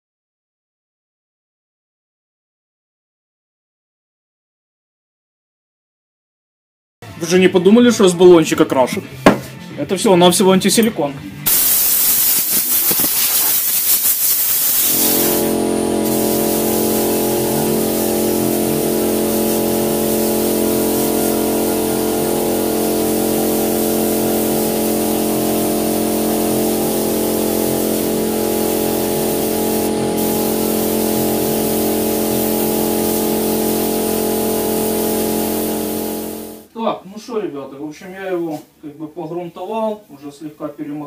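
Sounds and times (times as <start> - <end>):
spray gun hissing: 11.5 - 36.6.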